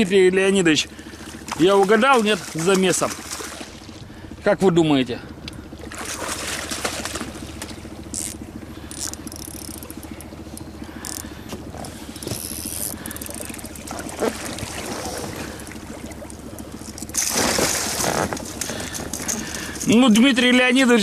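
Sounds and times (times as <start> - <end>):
steady low hum: 0.0 - 21.0
water splashing: 1.0 - 4.2, 5.7 - 8.0, 12.8 - 19.8
fishing reel winding: 8.1 - 11.3, 12.2 - 13.7.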